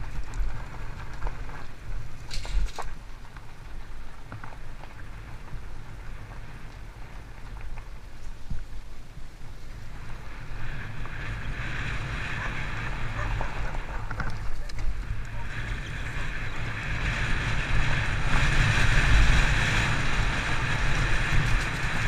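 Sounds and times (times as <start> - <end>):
loose stones crunching: 0.0 - 9.8, 13.2 - 16.1
bike tyres rolling over gravel: 0.0 - 22.0
wind on camera: 0.0 - 22.0.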